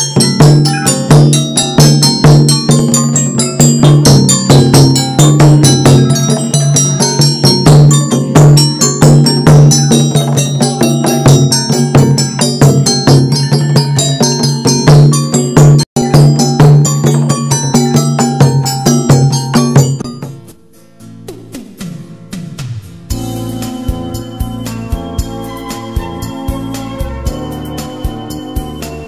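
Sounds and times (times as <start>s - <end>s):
gong circle ringing: 0.0s - 19.8s
xylophones playing fast runs: 0.0s - 20.2s
barrel drum: 0.0s - 29.0s.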